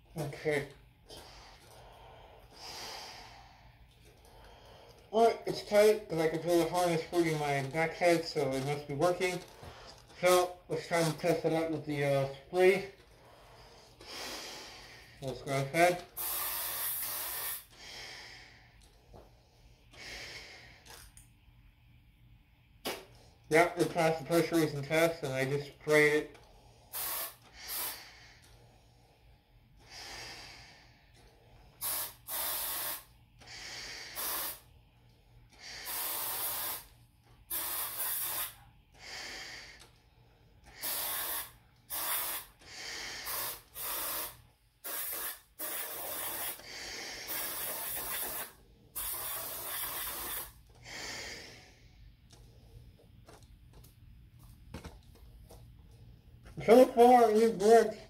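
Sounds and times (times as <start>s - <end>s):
breathing through a gas mask: 1.1s - 5.1s, 13.1s - 15.3s, 16.0s - 21.0s, 26.4s - 36.9s, 37.5s - 52.8s
aerosol spray hissing: 16.1s - 17.8s, 26.9s - 28.1s, 31.8s - 33.1s, 34.0s - 34.7s, 35.7s - 36.9s, 37.5s - 38.6s, 40.8s - 42.6s, 43.2s - 46.6s, 47.2s - 50.6s.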